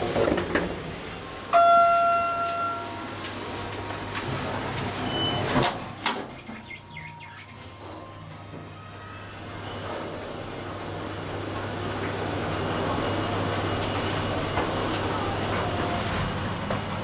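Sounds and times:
elevator chime: 0:01.4 - 0:03.4, 0:05.0 - 0:10.9
elevator door sliding shut: 0:02.0 - 0:17.0.

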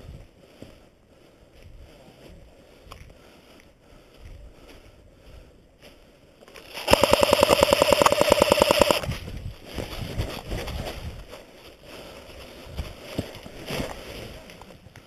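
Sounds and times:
airsoft gun full-auto burst: 0:06.7 - 0:09.1.

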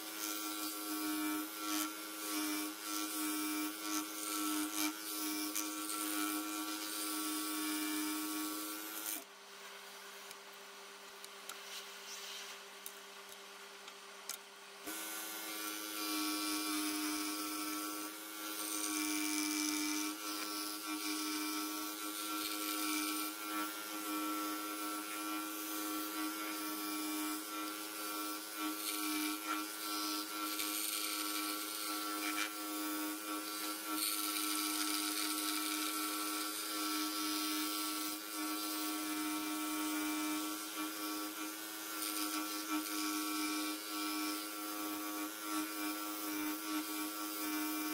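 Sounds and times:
scroll saw motor hum: 0:00.1 - 0:09.3.

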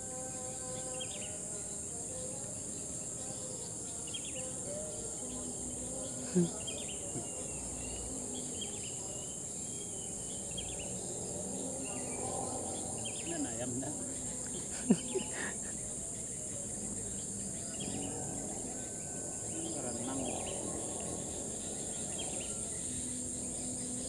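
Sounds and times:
insect chorus shrilling: 0:00.0 - 0:24.0.

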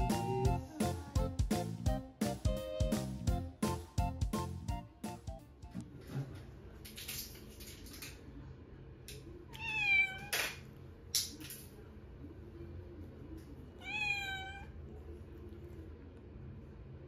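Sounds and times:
kitten meowing: 0:09.6 - 0:10.4, 0:13.8 - 0:14.7.

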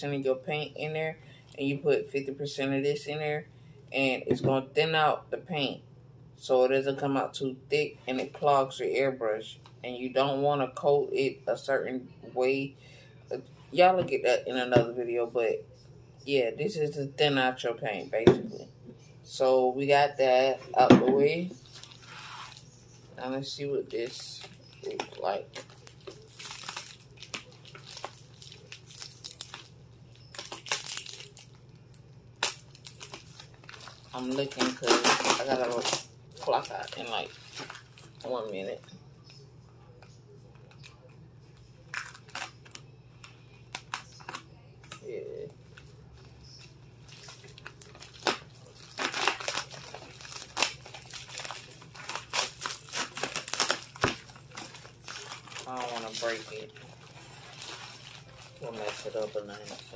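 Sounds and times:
plastic crinkling: 0:21.6 - 0:39.0, 0:39.9 - 0:59.9.

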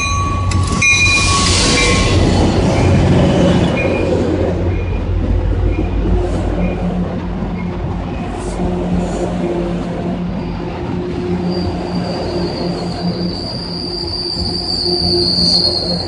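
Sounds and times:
high wheel squeal: 0:00.0 - 0:05.0, 0:10.4 - 0:16.0
train wheels rumbling on rail: 0:00.0 - 0:16.0.

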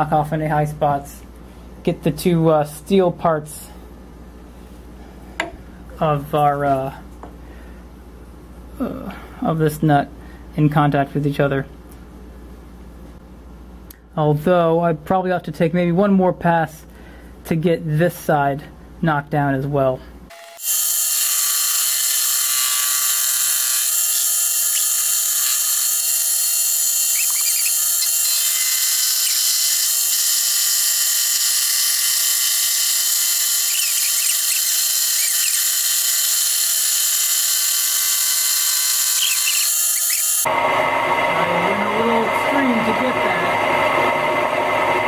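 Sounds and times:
milling machine whining: 0:20.3 - 0:45.0
cutter hissing on metal: 0:20.4 - 0:40.5.

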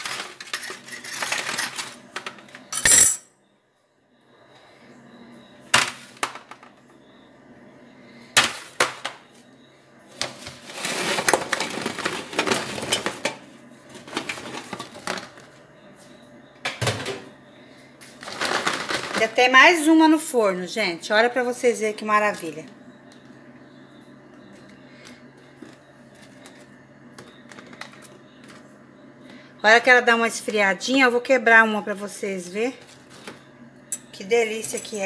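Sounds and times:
cookies clattering on metal tray: 0:00.0 - 0:03.2, 0:10.2 - 0:15.5, 0:18.2 - 0:19.4.

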